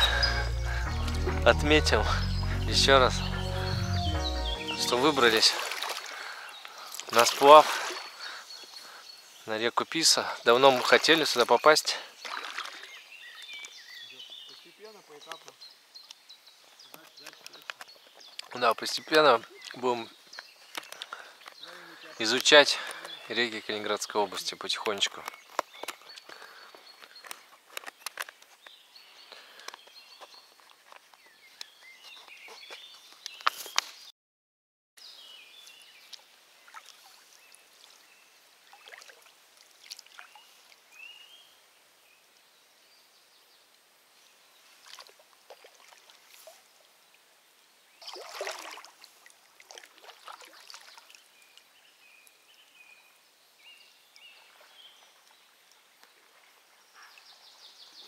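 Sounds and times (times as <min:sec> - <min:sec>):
small birds chirping: 0:00.0 - 0:34.1, 0:49.8 - 0:58.0
paddles splashing in water: 0:04.6 - 0:08.8, 0:10.5 - 0:13.7, 0:36.1 - 0:40.9, 0:44.7 - 0:46.7, 0:48.0 - 0:51.4.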